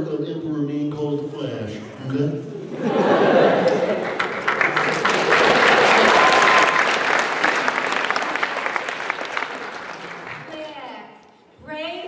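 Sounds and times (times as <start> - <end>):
audience clapping: 3.6 - 11.0.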